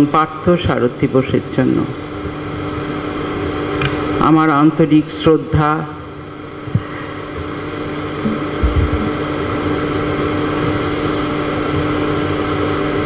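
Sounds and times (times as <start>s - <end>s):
steady background hum: 0.0s - 13.0s
soft low bump: 8.2s - 9.2s.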